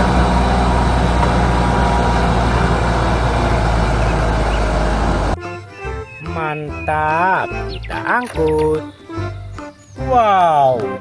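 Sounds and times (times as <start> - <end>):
diesel engine running: 0.0 - 5.4.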